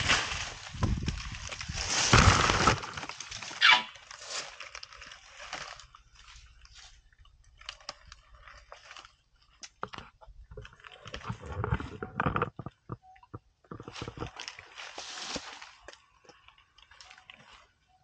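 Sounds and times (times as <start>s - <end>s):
elephant crunching leaves and branches: 0.0s - 13.0s, 13.7s - 18.0s
faint crackles and snaps: 0.0s - 18.0s
brief squeak: 3.6s - 4.0s.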